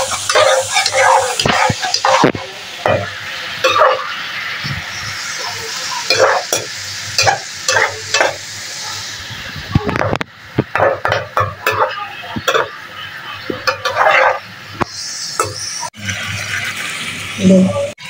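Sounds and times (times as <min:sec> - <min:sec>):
metal spoon scraping pan: 0:00.0 - 0:04.1, 0:06.0 - 0:08.4, 0:10.7 - 0:12.8, 0:13.6 - 0:14.5
food sizzling in a pan: 0:00.0 - 0:18.0.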